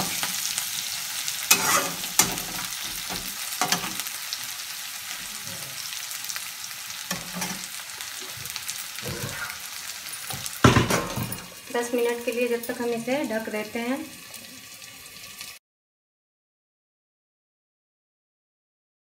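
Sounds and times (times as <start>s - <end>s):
spatula scraping a pan: 0.0s - 4.2s, 5.1s - 6.2s, 7.0s - 11.2s
potatoes sizzling in hot oil: 0.0s - 15.6s.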